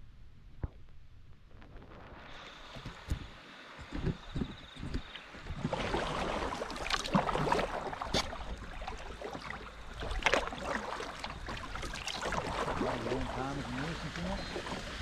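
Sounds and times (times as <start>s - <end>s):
kayak paddle splashing water: 5.0s - 15.0s.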